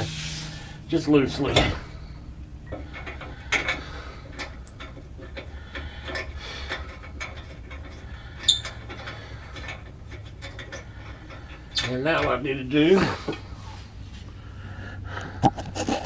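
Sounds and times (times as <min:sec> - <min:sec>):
bolts clicking into metal flange: 0:02.7 - 0:12.5.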